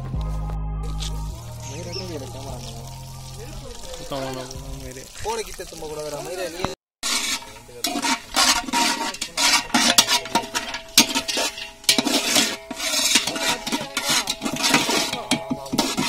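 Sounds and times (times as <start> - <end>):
nuts frying: 1.3 - 16.0
spatula scraping metal pot: 7.0 - 16.0.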